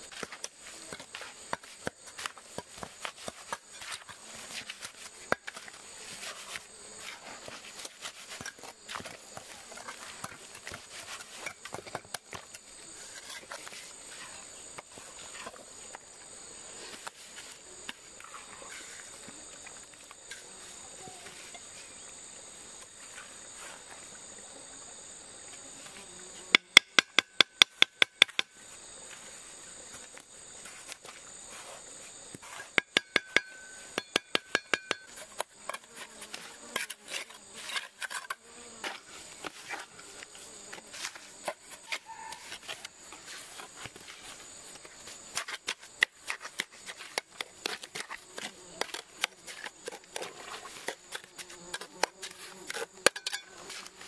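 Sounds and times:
sharp ringing taps: 0:33.0 - 0:35.1.

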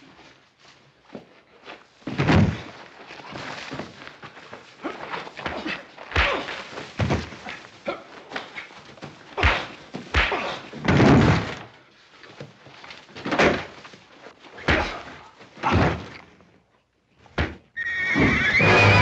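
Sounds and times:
bodies crashing into wooden walls: 0:02.0 - 0:04.0, 0:05.1 - 0:07.7, 0:09.0 - 0:11.8, 0:13.1 - 0:14.0, 0:14.6 - 0:16.4
punches landing with thuds: 0:02.1 - 0:02.8, 0:05.4 - 0:07.6, 0:09.3 - 0:11.7, 0:13.2 - 0:13.8, 0:14.6 - 0:16.2, 0:17.3 - 0:17.7
music: 0:18.6 - 0:19.0.

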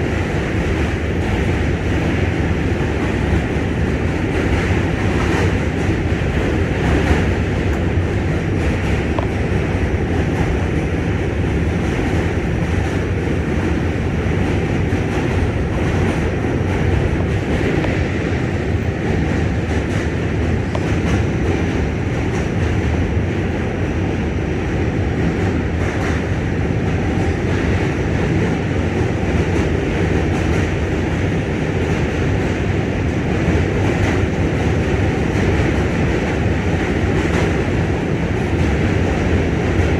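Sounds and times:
subway wheels rumbling on rails: 0:00.0 - 0:39.9.

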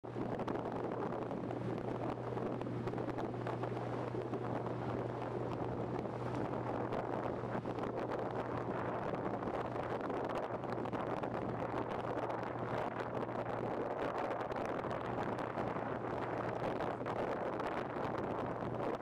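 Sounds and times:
motorboat engine droning: 0:00.1 - 0:19.0
wind buffeting microphone: 0:00.1 - 0:19.0.

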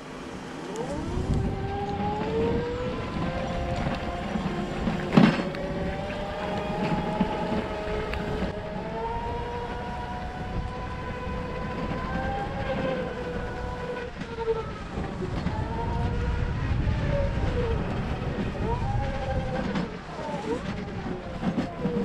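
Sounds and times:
wind and tyre noise on wet road: 0:00.0 - 0:22.0.

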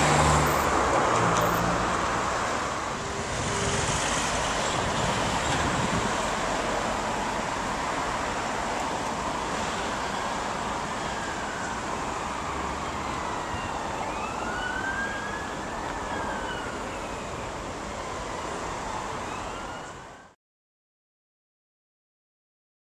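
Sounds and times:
road traffic noise: 0:00.0 - 0:20.4
siren wailing: 0:09.8 - 0:20.3.

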